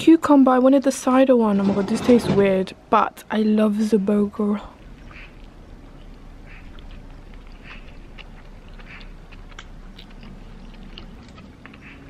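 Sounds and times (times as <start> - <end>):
person chewing with smacking: 4.8 - 12.0.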